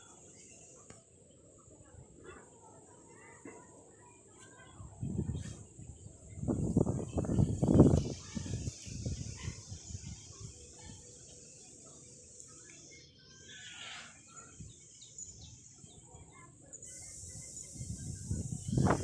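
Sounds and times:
steady high hiss: 0:06.2 - 0:19.0.

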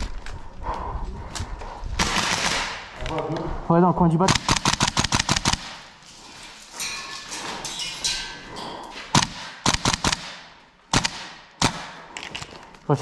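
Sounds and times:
airsoft gun shots: 0:02.0 - 0:02.8, 0:09.2 - 0:12.0.

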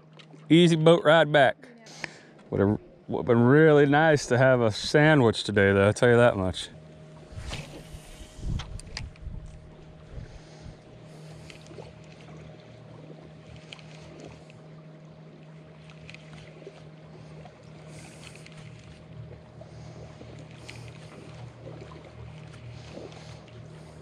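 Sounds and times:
steady low hum: 0:00.0 - 0:24.0
water lapping against a hull: 0:00.0 - 0:24.0
brief swishes: 0:07.3 - 0:08.8
light clicks: 0:13.5 - 0:14.6, 0:15.8 - 0:16.5.

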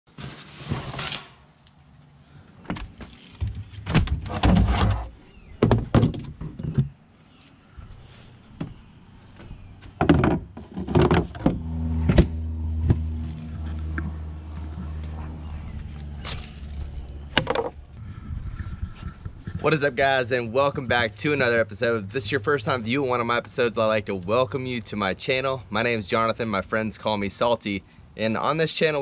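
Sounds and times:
steady low hum: 0:11.2 - 0:24.3.

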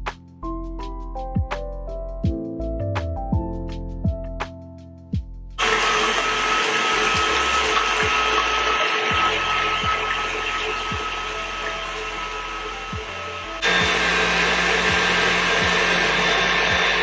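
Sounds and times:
stand mixer whisking eggs: 0:05.6 - 0:17.0.

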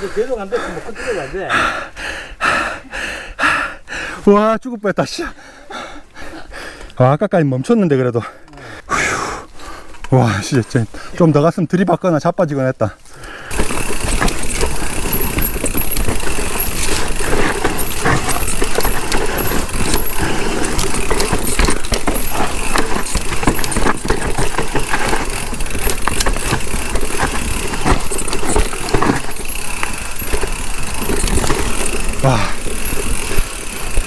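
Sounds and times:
bike rattling and knocking: 0:13.4 - 0:34.0.

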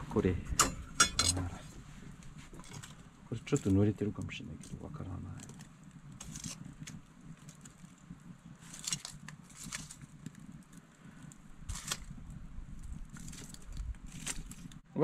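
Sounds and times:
fire crackling: 0:00.0 - 0:15.0
low steady rumble: 0:00.0 - 0:15.0
sharp pops and clicks: 0:02.2 - 0:14.8.

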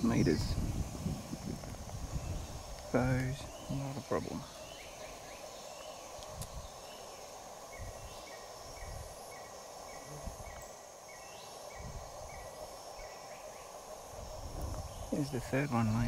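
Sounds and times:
wind rumbling on microphone: 0:00.0 - 0:05.3, 0:06.0 - 0:06.9, 0:07.7 - 0:10.7, 0:11.6 - 0:13.2, 0:14.0 - 0:16.0
insect drone: 0:00.0 - 0:16.0.

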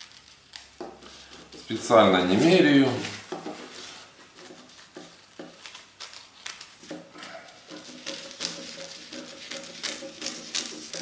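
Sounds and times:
scissors snipping paper: 0:00.0 - 0:02.0, 0:04.4 - 0:11.0.

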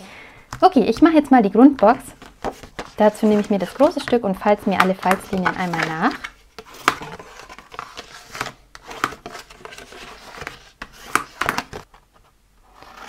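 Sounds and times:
paper rustling: 0:01.8 - 0:13.0
bone folder scraping paper: 0:05.0 - 0:11.8, 0:12.7 - 0:13.0.

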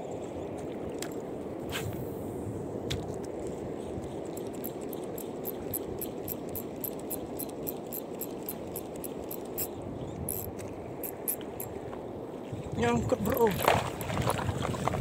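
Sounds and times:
wind and water rushing: 0:00.0 - 0:15.0
fishing reel ticking: 0:04.3 - 0:11.7.

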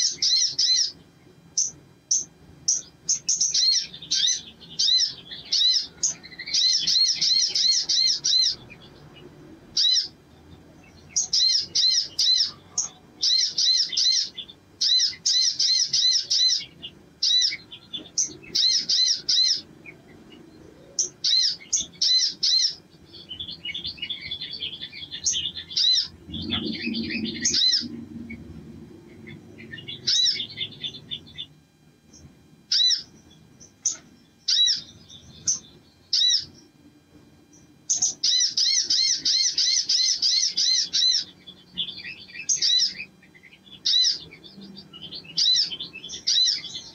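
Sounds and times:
bird singing high ringing notes: 0:00.0 - 0:46.9.

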